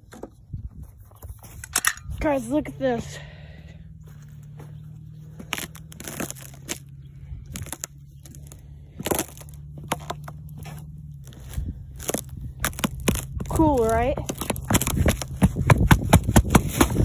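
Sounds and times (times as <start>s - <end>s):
low steady hum: 0.0s - 17.0s
footsteps on ice: 1.3s - 17.0s
ice cracking and crunching: 5.2s - 17.0s.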